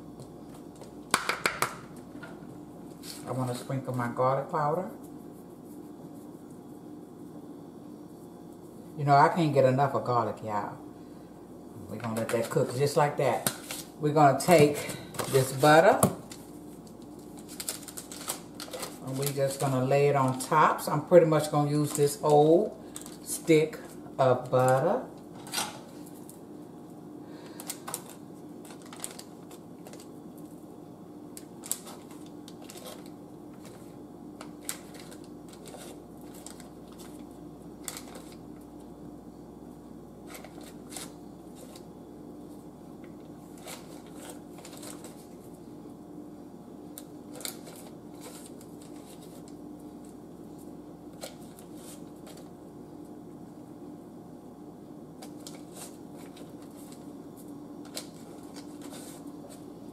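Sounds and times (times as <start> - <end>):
paper rustling: 34.5 - 38.4, 43.5 - 45.4, 47.3 - 49.5, 57.8 - 59.6.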